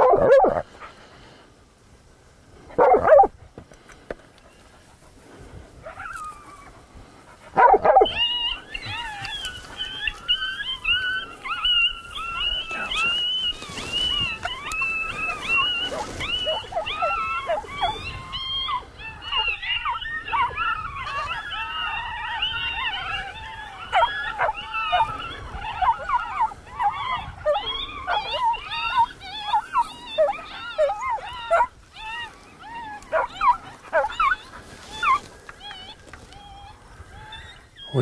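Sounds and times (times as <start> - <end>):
dog barking: 0.0 - 0.6, 2.8 - 3.3, 7.5 - 8.2, 33.1 - 34.4
dog yipping and whining: 5.9 - 6.8, 7.5 - 38.0.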